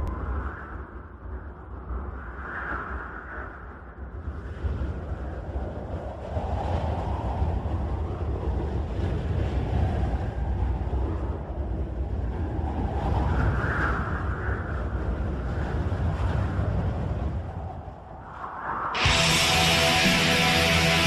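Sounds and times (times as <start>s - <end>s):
howling wind gusts: 0.0s - 21.0s
deep steady rumble: 19.0s - 21.0s.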